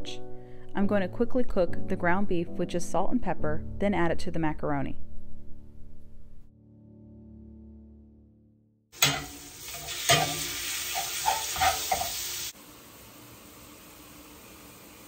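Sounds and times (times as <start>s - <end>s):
utensil scraping and tapping pan: 9.0s - 12.2s
ground beef sizzling in skillet: 9.0s - 15.0s.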